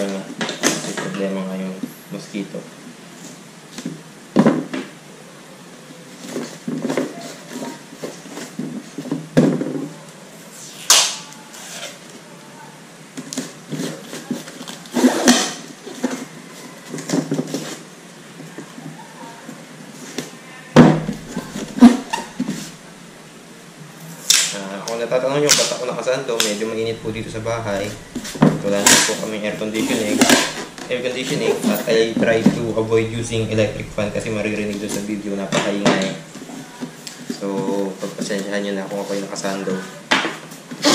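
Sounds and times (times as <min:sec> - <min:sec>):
tape strips scraping: 0:20.9 - 0:23.0, 0:26.8 - 0:35.4.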